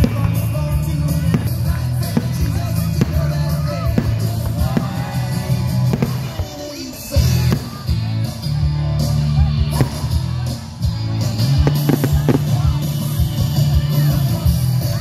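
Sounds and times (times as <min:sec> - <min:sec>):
loud rock music: 0:00.0 - 0:15.0
firework bangs: 0:01.2 - 0:08.0, 0:11.5 - 0:13.2.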